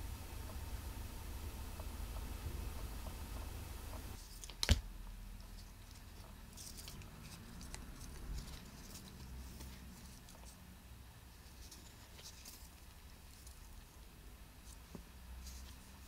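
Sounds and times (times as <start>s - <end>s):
paper crinkling and ticking: 5.5s - 10.6s.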